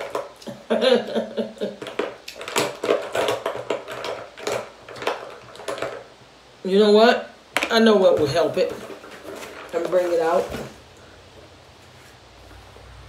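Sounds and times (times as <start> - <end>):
containers and tools clicking: 1.7 - 6.1.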